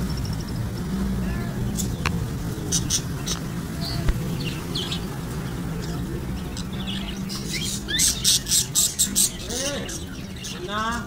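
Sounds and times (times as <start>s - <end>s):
low background rumble: 0.0s - 10.7s
small parrots chirping: 0.0s - 11.0s.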